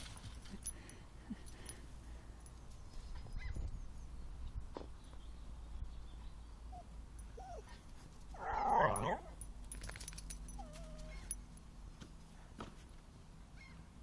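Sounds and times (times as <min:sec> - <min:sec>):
dog whimpering: 0:06.7 - 0:07.8.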